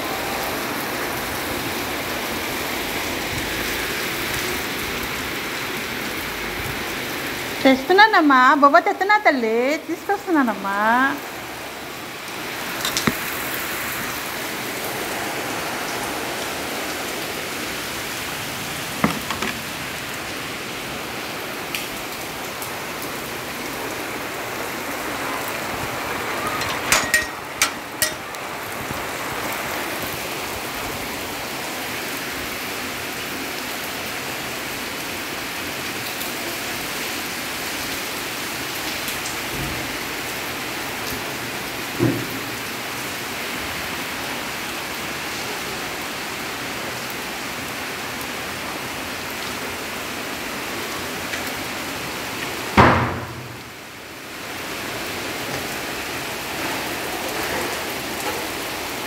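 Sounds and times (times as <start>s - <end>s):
steady rain falling: 0.0s - 59.0s
sharp clicks and knocks: 12.8s - 13.2s, 19.0s - 19.6s, 26.6s - 28.2s.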